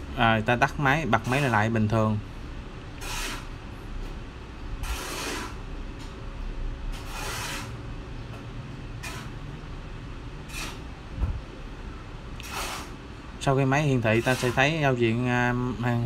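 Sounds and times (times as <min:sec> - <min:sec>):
copier humming: 0:00.0 - 0:16.0
rasping swishes: 0:07.0 - 0:07.8.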